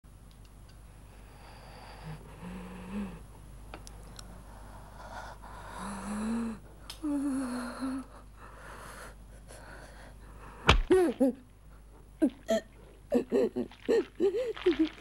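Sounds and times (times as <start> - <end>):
breathing: 1.0 - 3.2, 4.3 - 10.7
person moaning and gasping: 5.7 - 8.3, 10.8 - 11.4, 12.2 - 15.0.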